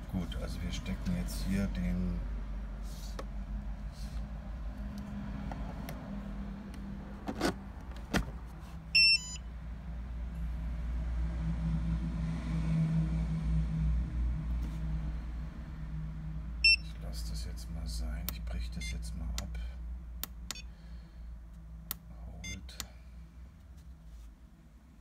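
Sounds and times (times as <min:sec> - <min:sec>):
cooling fan hum: 0:00.0 - 0:12.6
stepped electronic beep: 0:16.6 - 0:16.9.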